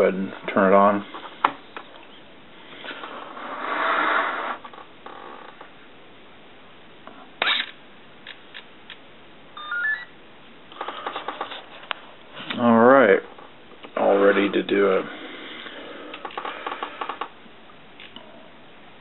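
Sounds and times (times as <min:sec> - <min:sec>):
rising start-up beeps: 0:09.6 - 0:10.1
rustling handling noise: 0:10.8 - 0:14.5.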